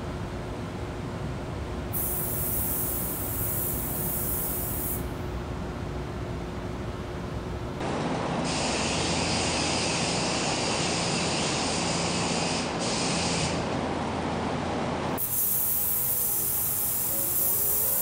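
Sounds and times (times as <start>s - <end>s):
steady low hum: 0.0s - 10.4s
spray gun hissing: 2.0s - 5.0s, 8.5s - 13.6s, 15.2s - 18.0s.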